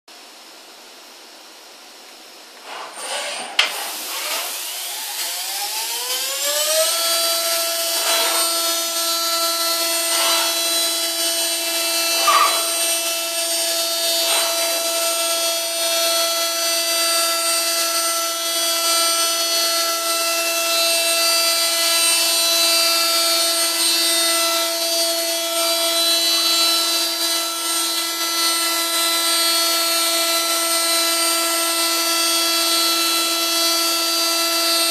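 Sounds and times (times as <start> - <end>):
rough cutting noise: 2.6 - 16.3.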